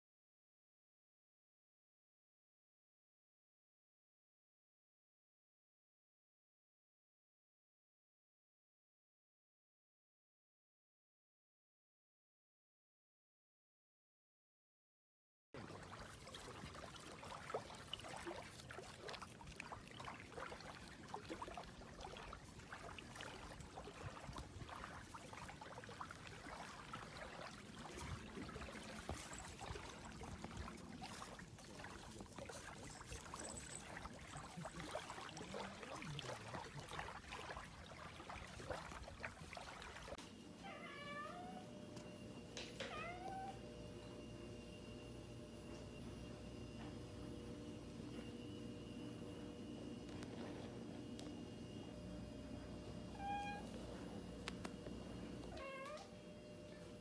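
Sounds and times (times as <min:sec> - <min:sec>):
cat meowing: 0:40.6 - 0:41.7, 0:42.8 - 0:43.6, 0:53.1 - 0:53.7, 0:55.5 - 0:56.1.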